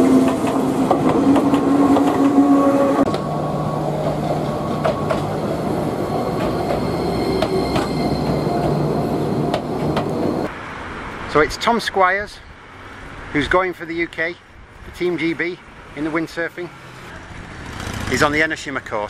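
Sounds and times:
train wheels clicking on rails: 4.0s - 5.6s.

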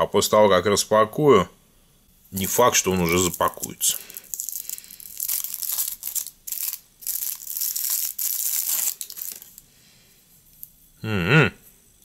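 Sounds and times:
foil wrapper crinkling: 2.4s - 9.6s.

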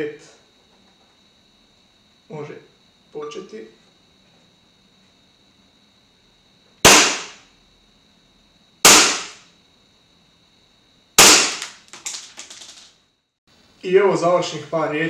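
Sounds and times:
airsoft pistol shots: 6.8s - 7.4s, 8.9s - 9.4s, 11.2s - 11.8s.

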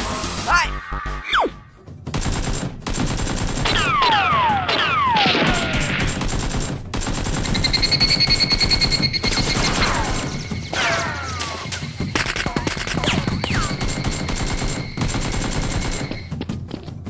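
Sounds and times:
automatic gunfire sound effects: 2.1s - 10.4s, 12.1s - 16.3s.

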